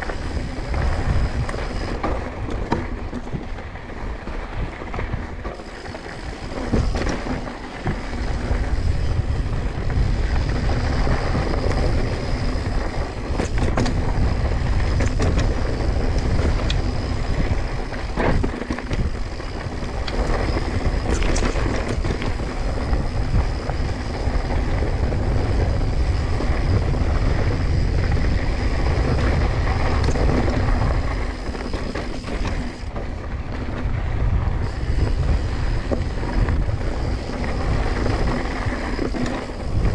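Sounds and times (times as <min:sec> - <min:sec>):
bike rattling: 0:00.0 - 0:39.9
tyres crunching over stones: 0:05.5 - 0:24.5.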